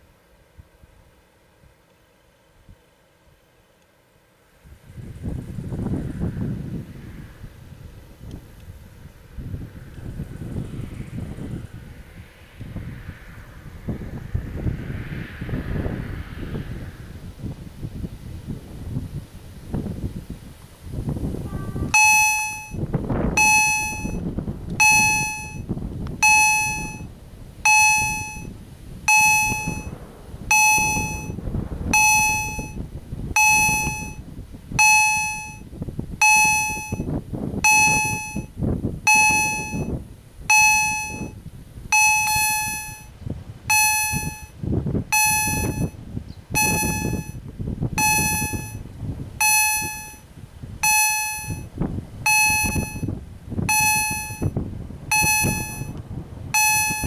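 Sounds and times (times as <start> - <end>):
level crossing bell dinging: 21.9 - 22.8, 23.4 - 24.2, 24.8 - 25.6, 26.2 - 27.0, 27.7 - 28.5, 29.1 - 29.9, 30.5 - 31.4, 32.0 - 32.8, 33.4 - 34.2, 34.8 - 35.6, 36.2 - 37.0, 37.7 - 38.5, 39.1 - 39.9, 40.5 - 41.3, 42.0 - 43.1, 43.7 - 44.5, 45.2 - 45.9, 46.6 - 47.4, 48.0 - 48.8, 49.4 - 50.2, 50.8 - 51.6, 52.3 - 53.1, 53.7 - 54.5, 55.1 - 55.9, 56.6 - 57.0.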